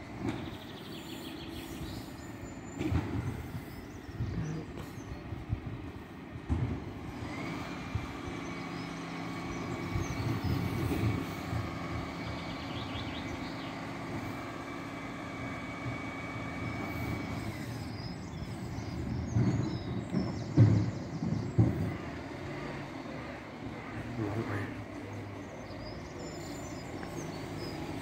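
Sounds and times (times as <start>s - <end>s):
diesel engine running: 0.0s - 28.0s.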